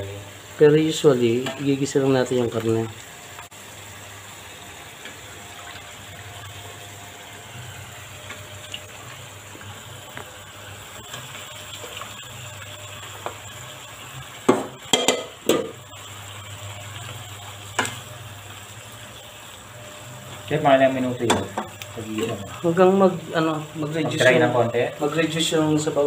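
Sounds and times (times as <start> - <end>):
meat sizzling in a pan: 0.0 - 26.0
loud knocks against a pan: 14.4 - 15.8.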